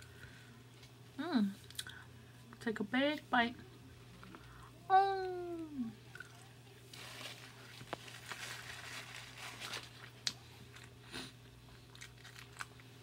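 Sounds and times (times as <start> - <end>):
faint low hum: 0.0 - 13.0
small mouth clicks: 1.7 - 2.0
close-miked chewing: 11.7 - 13.0.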